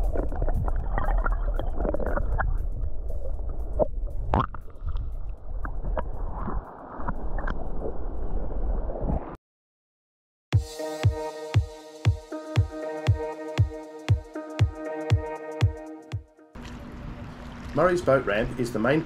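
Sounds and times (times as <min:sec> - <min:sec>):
low underwater rumble: 0:00.0 - 0:08.6
water sloshing and gurgling: 0:00.0 - 0:08.6, 0:16.5 - 0:18.1.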